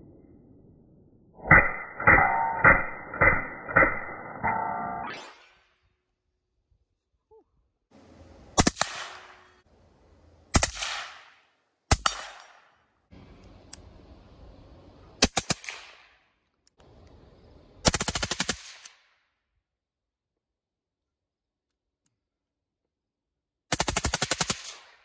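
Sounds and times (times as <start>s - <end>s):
suppressed rifle rapid fire: 8.6s - 9.4s, 10.5s - 12.7s, 15.2s - 16.1s, 17.8s - 18.9s, 23.7s - 24.9s
gunshot echo: 8.6s - 9.6s, 10.5s - 12.7s.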